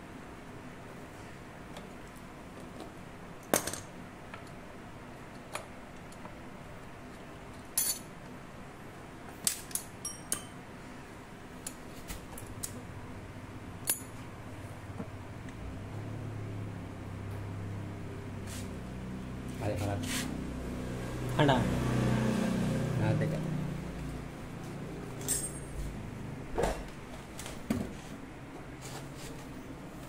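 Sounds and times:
sharp metallic clinks and taps: 9.7 - 10.6, 25.2 - 25.7.

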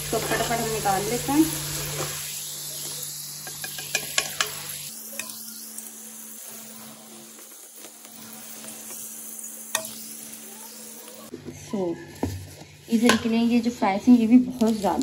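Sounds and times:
fries sizzling in hot oil: 0.0 - 15.0.

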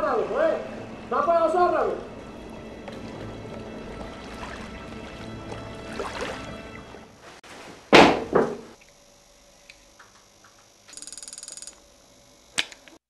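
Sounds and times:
background music: 0.0 - 7.2.

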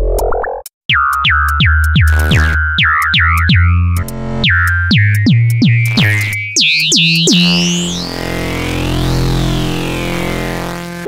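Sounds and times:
electronic synthesizer music: 0.0 - 11.0
high tone gliding: 3.6 - 11.0.

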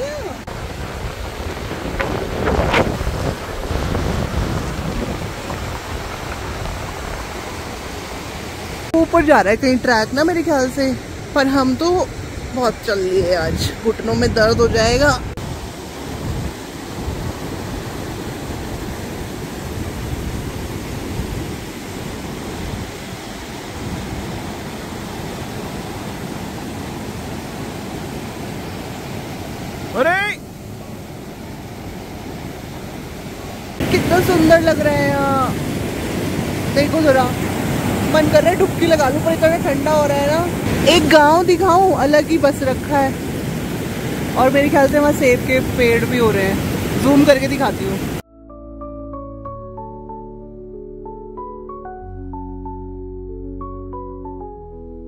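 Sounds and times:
river rushing: 0.0 - 48.2
wind buffeting microphone: 0.0 - 48.2.

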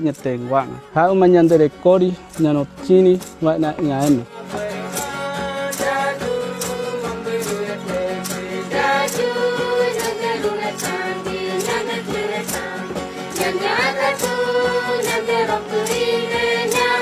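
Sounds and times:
steady drum beat: 0.9 - 17.0
group of voices singing: 4.3 - 17.0.

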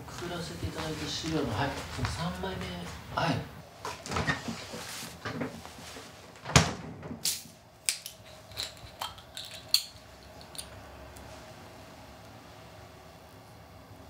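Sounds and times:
refrigerator door thudding shut: 6.4 - 7.2.

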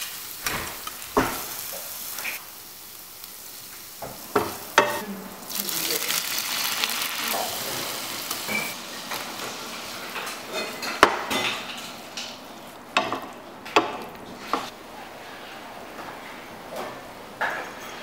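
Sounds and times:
butter sizzling in frying pan: 0.0 - 12.2.

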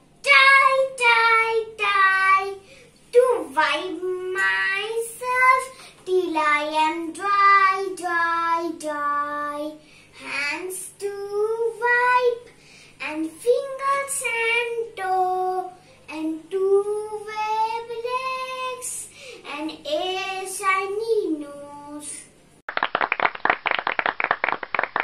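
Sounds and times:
girl singing a rhyme: 0.2 - 22.4
applause: 22.7 - 25.0.

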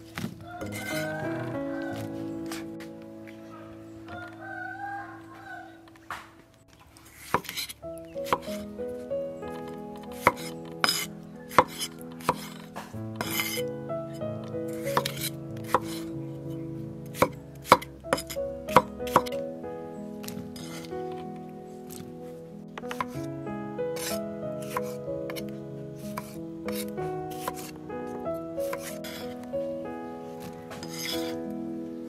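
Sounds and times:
soft background music: 0.0 - 32.0
knife chopping on wooden board: 7.3 - 7.6.

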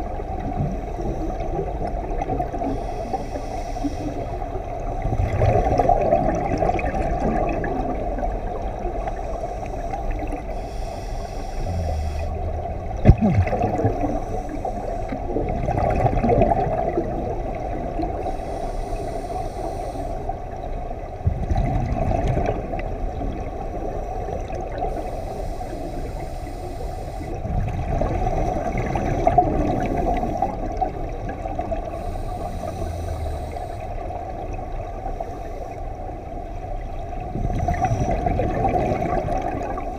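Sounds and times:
exhaled bubbles gurgling: 0.0 - 39.9
regulator inhale hiss: 2.6 - 4.6, 9.0 - 12.8, 13.8 - 15.4, 18.1 - 20.5, 23.9 - 27.5, 31.6 - 34.2, 35.0 - 36.2.

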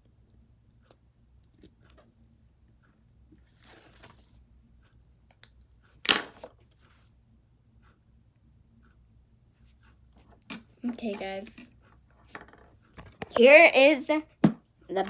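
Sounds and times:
paper rustling: 3.5 - 4.4.

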